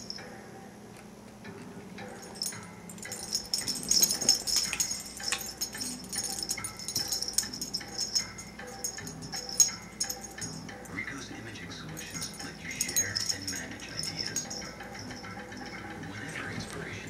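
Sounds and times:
dog collar tags jingling: 2.1 - 16.8.

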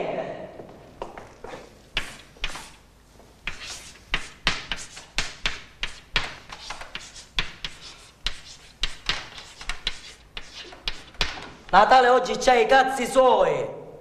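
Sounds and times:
chalk tapping and scraping: 1.5 - 11.8.

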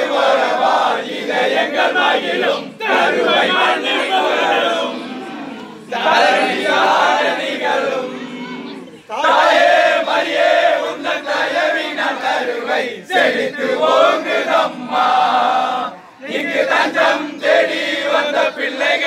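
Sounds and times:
group singing a hymn: 0.0 - 19.0.

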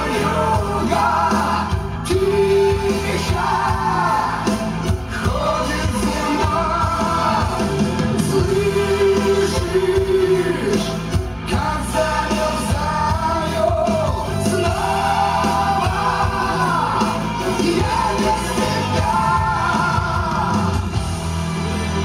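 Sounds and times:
low bass notes: 0.0 - 22.0.

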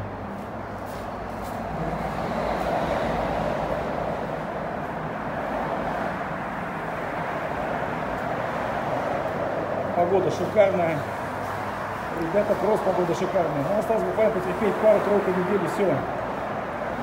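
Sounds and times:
heavy traffic rumble: 0.0 - 17.0.

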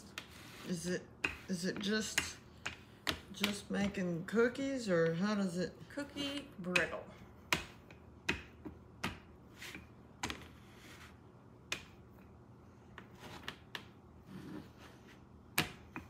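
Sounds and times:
rolling pin rolling over dough: 0.0 - 16.0.

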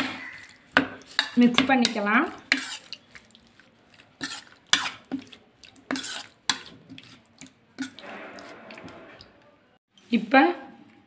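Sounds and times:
spoon scraping a bowl: 0.2 - 9.4.

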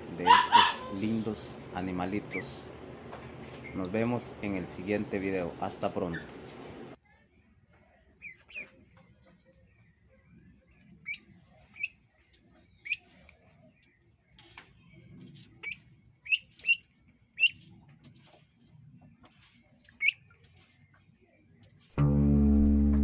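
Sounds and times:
ducklings peeping: 0.1 - 2.7, 8.2 - 21.9.

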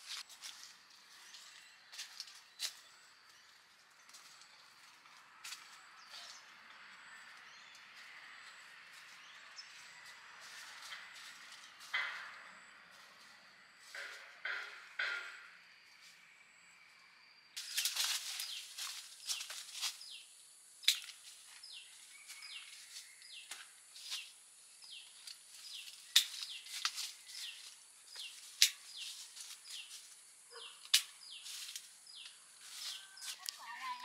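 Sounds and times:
bird chirping: 13.9 - 34.0
branches rustling and snapping: 17.6 - 20.2, 20.8 - 34.0.

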